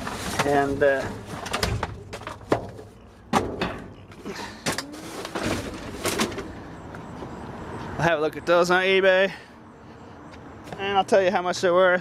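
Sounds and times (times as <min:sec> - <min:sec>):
cans and bottles clattering: 0:00.0 - 0:06.6
trash rustling: 0:00.0 - 0:07.4.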